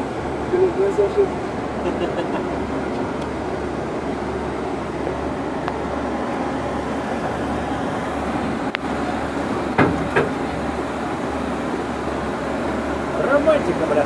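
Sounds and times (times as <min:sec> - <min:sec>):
vehicle engine and road rumble: 0:00.0 - 0:14.0
louder knocks: 0:09.8 - 0:10.4.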